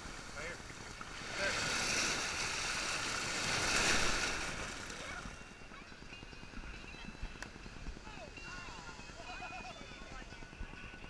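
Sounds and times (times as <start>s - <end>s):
ocean surf breaking: 0.0s - 5.4s.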